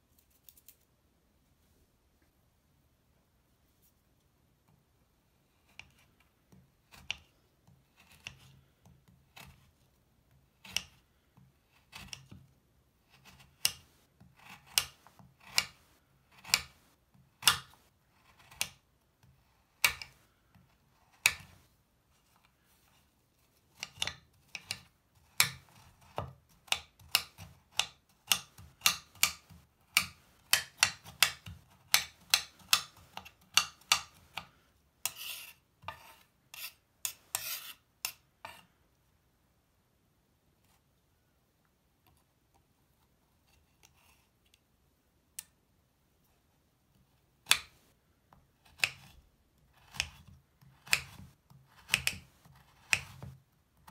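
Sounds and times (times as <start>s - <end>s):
knife cutting on cutting board: 35.0s - 37.8s, 49.8s - 53.4s.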